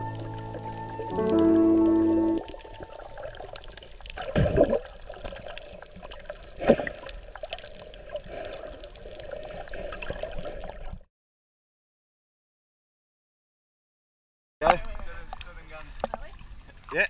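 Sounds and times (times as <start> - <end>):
muffled underwater sea water: 0.0 - 11.0, 14.6 - 17.0
swishes of moving water: 0.0 - 11.0.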